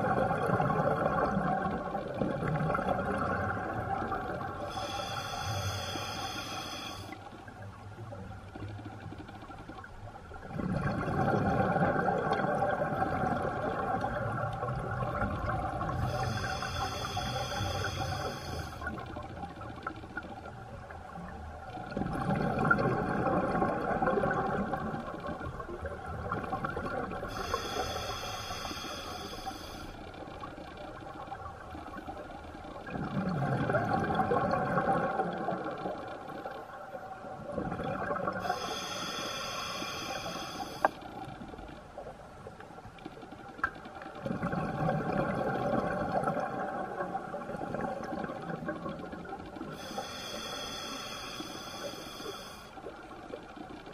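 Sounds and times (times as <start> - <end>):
diver breathing through regulator: 4.7 - 7.2, 16.0 - 18.9, 27.3 - 30.1, 38.4 - 41.0, 49.7 - 52.8
hissing inhale: 4.7 - 7.2, 16.0 - 18.9, 27.3 - 30.2, 38.4 - 41.0, 49.7 - 52.9.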